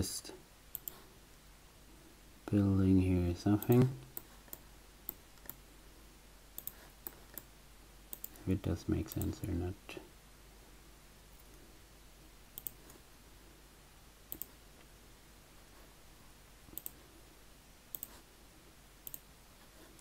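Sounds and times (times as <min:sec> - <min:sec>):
faint room hiss: 0:00.0 - 0:20.0
computer mouse clicking: 0:00.7 - 0:01.0, 0:03.6 - 0:05.6, 0:06.6 - 0:07.5, 0:08.1 - 0:08.4, 0:09.1 - 0:09.6, 0:12.6 - 0:13.0, 0:14.3 - 0:14.6, 0:16.7 - 0:17.0, 0:17.9 - 0:18.2, 0:19.0 - 0:19.3.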